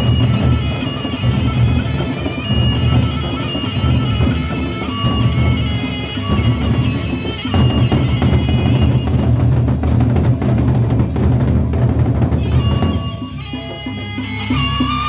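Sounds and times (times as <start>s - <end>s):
reedy wind melody: 0.0s - 11.1s
clashing hand cymbals: 0.0s - 15.0s
drums beaten fast and loud: 0.0s - 15.0s.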